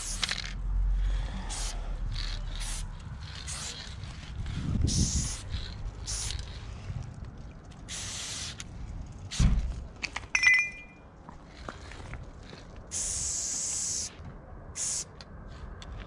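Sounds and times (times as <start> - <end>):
spray-paint can hissing: 0.0 - 0.4, 1.4 - 6.6, 7.8 - 9.6, 12.9 - 14.2, 14.8 - 15.1
sharp clicks with metallic ring: 10.3 - 11.0.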